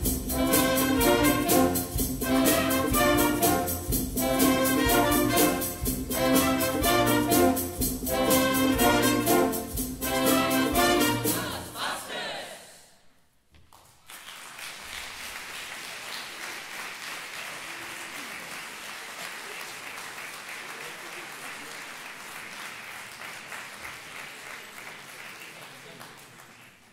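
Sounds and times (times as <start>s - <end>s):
large audience applauding: 13.7s - 26.9s.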